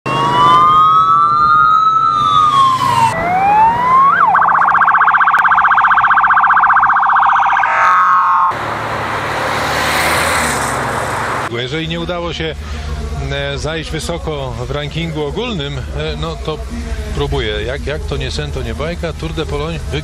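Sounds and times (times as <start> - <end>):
police sirens wailing: 0.1 - 8.6.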